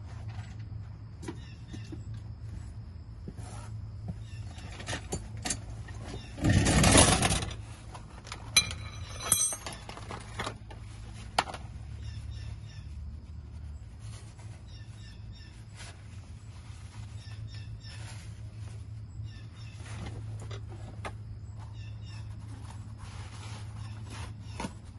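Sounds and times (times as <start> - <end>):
small metallic clink: 8.5 - 10.4
faint bird chirps: 11.9 - 20.3.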